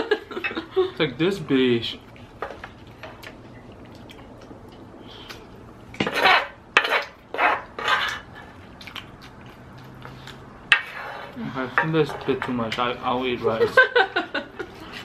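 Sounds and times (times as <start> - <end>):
wooden spoon scraping griddle: 6.0 - 8.4, 10.7 - 13.8.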